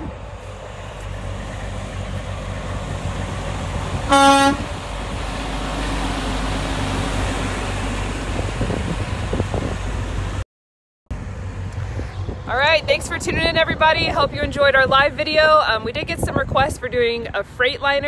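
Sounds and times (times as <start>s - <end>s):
truck engine and tyres rumbling: 0.0s - 10.4s, 11.1s - 18.0s
truck horn toot: 4.0s - 4.7s.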